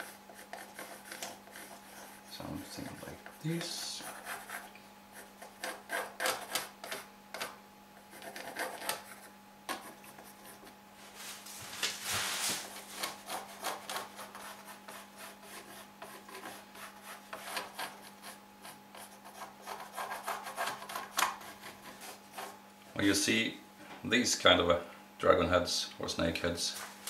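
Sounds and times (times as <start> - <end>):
pencil scratching on wood: 0.0 - 10.7, 13.0 - 22.6.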